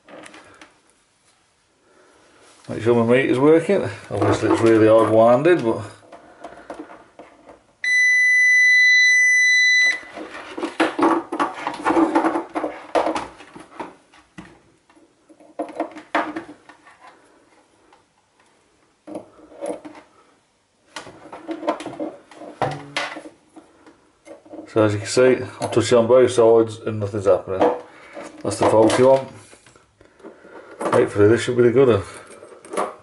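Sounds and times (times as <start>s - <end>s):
multimeter continuity beep: 7.8s - 10.1s.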